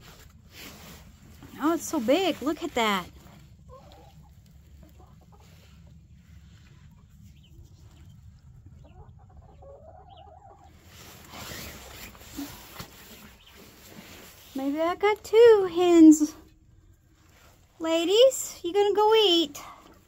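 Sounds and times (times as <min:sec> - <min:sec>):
hens clucking: 0:01.8 - 0:14.4.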